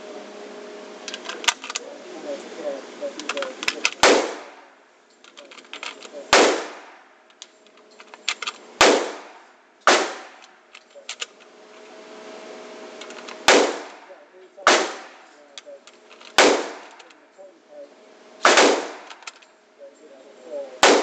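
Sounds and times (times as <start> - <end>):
cartridges clicking into magazine: 1.1 - 1.8, 3.2 - 4.2, 5.2 - 6.2, 7.3 - 8.6, 10.4 - 11.5, 13.0 - 13.6, 15.6 - 17.2, 18.5 - 19.5
echoing gunshots: 3.2 - 4.7, 5.6 - 7.2, 8.0 - 11.3, 13.0 - 15.4, 16.1 - 17.1, 18.1 - 19.3, 20.8 - 21.0.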